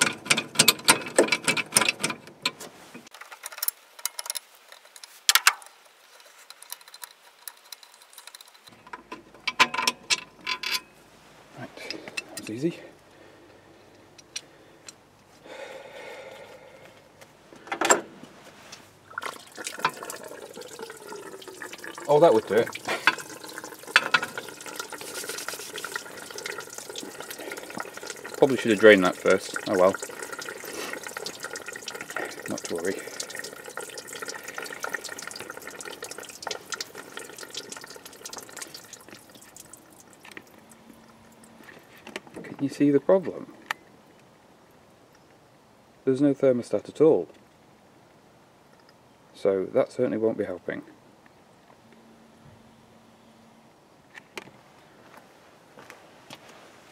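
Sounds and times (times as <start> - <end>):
metal clatter: 0.0 - 5.6, 22.8 - 26.6
metal clicks: 6.5 - 10.9
metal clunk: 8.7 - 11.0
coolant pouring: 18.9 - 42.5.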